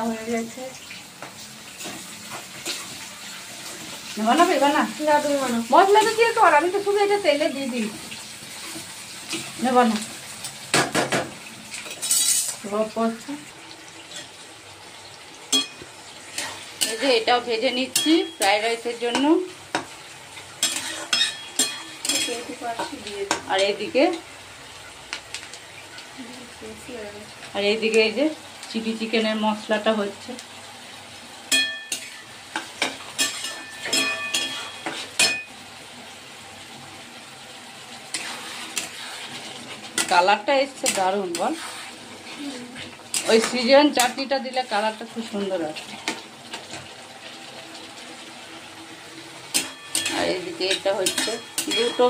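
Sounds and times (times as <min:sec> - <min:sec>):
vegetables sizzling in pan: 0:00.0 - 0:52.0
metal spatula scraping pan: 0:11.8 - 0:12.6, 0:20.6 - 0:23.4, 0:31.5 - 0:35.5, 0:38.1 - 0:45.0, 0:49.5 - 0:52.0.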